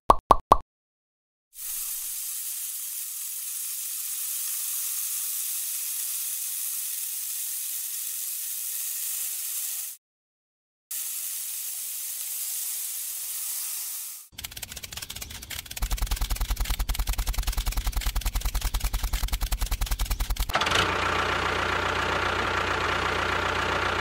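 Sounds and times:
trowel scraping through sand: 13.1s - 20.5s.

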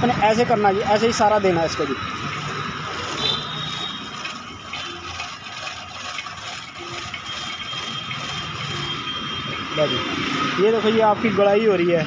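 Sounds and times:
sewing machine stitching: 3.6s - 9.2s.

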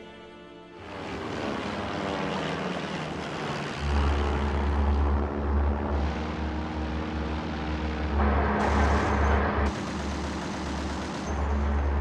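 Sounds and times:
propeller aircraft engine droning: 0.6s - 12.0s
rushing noise: 5.7s - 9.7s.

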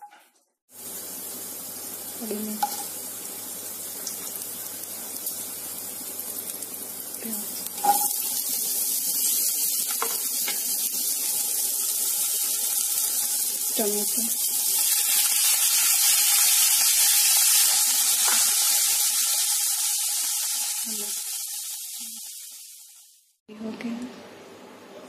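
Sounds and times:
hot oil sizzling in a pan: 0.7s - 23.4s
onions dropping into a pan: 2.6s - 3.0s.

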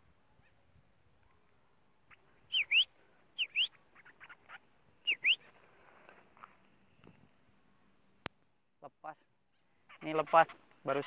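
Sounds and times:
birds calling: 1.4s - 7.4s, 9.4s - 11.0s.

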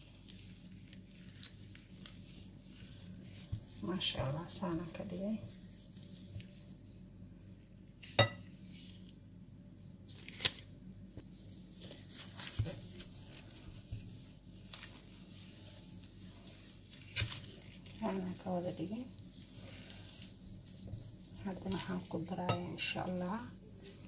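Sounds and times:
spatula stirring batter: 0.0s - 6.7s, 11.6s - 24.0s.

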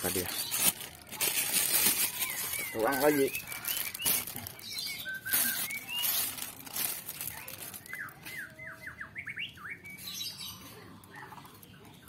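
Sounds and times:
plastic bag crinkling: 0.0s - 8.5s
bird singing whistled notes: 2.1s - 6.3s, 7.8s - 10.6s.

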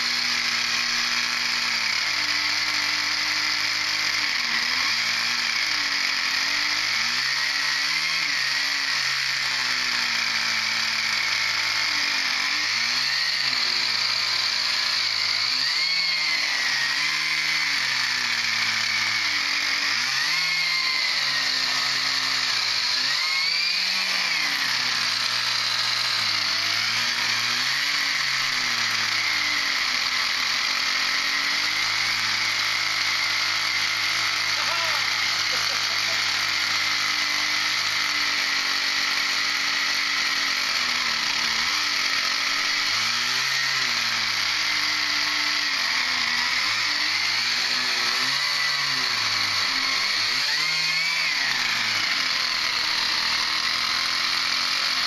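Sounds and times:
small model engine running: 0.0s - 55.0s.

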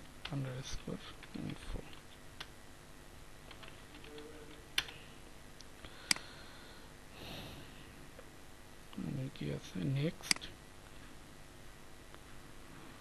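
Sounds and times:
keyboard typing: 3.5s - 5.0s.

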